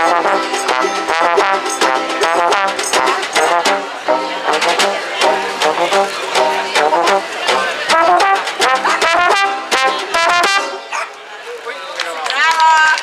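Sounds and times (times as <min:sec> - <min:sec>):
snare drum and cymbal beat: 0:00.0 - 0:03.8, 0:04.5 - 0:10.6
trombone swing melody: 0:00.0 - 0:11.1.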